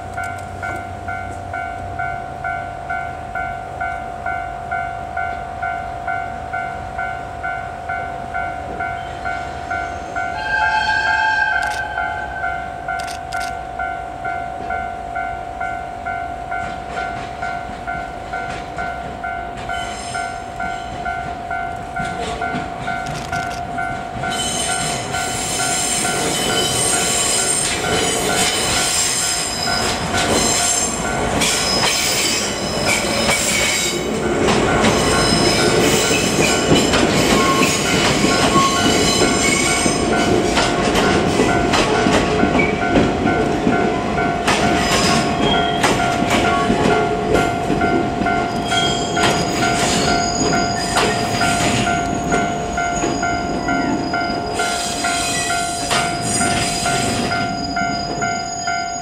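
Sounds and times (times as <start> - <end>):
diesel train passing: 0.0 - 59.0
wheel and rail noise: 11.4 - 59.0
level crossing bell ringing: 41.1 - 59.0.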